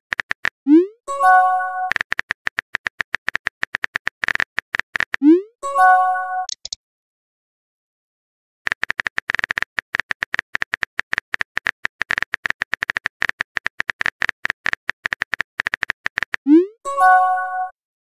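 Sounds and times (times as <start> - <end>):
message send tone: 0.7 - 2.0
phone keyboard typing taps: 1.9 - 5.2, 6.5 - 6.8, 8.7 - 16.4.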